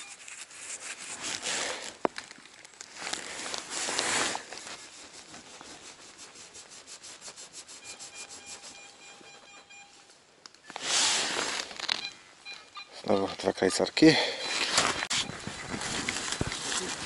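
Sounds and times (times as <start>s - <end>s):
metal detector beeps: 0.0s - 0.2s, 7.8s - 11.3s, 11.9s - 15.4s
soil and leaves scraped by hand: 0.0s - 9.0s, 10.7s - 12.1s, 14.5s - 17.0s.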